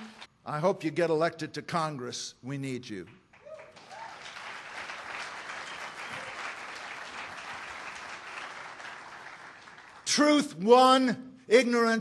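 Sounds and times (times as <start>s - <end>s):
audience applauding: 3.4s - 10.2s.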